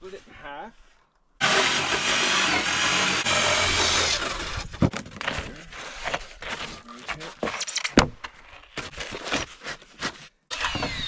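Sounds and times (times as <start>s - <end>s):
power saw cutting foam: 1.4s - 4.8s, 10.5s - 11.0s.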